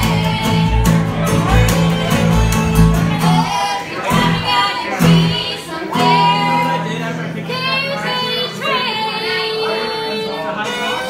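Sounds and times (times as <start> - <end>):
women singing: 0.0 - 1.9, 3.1 - 11.0
upright bass plucking: 0.0 - 7.3
fiddle: 0.0 - 11.0
mandolin: 0.0 - 11.0
strummed acoustic guitar: 0.0 - 11.0.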